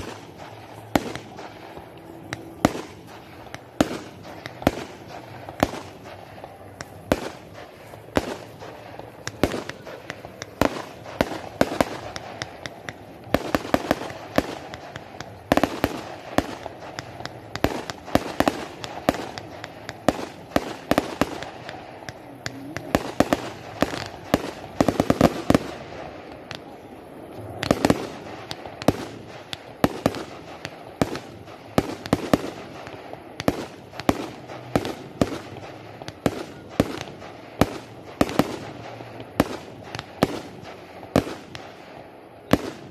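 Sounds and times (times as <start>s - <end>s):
fireworks bangs and crackles: 0.0s - 42.9s
murmur of voices: 19.3s - 24.8s.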